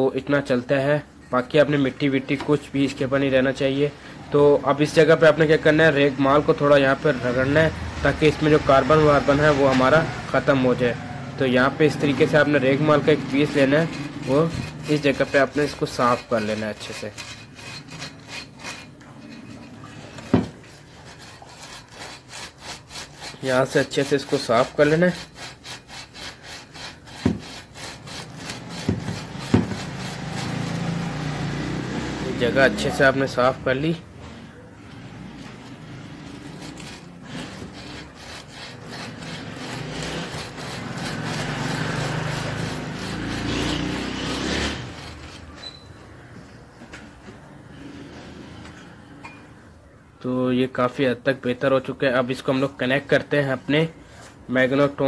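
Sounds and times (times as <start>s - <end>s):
sandpaper rasping on metal: 11.8s - 34.0s, 34.9s - 45.7s.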